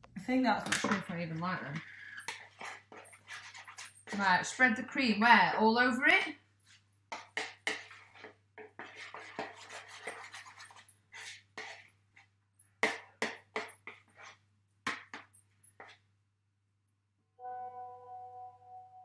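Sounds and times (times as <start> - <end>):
whisk scraping ceramic bowl: 1.8 - 4.7, 7.1 - 11.9, 12.8 - 14.4.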